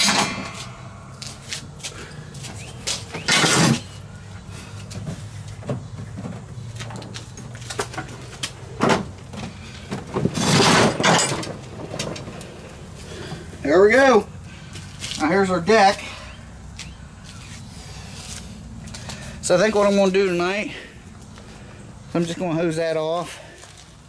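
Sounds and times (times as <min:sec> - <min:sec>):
metal clunks: 0:00.0 - 0:01.4
metal deck scraping across concrete: 0:02.6 - 0:13.6.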